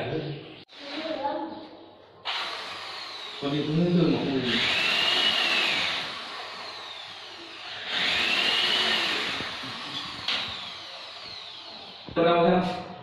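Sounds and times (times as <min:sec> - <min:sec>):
power tool motor whine: 0:02.3 - 0:12.2.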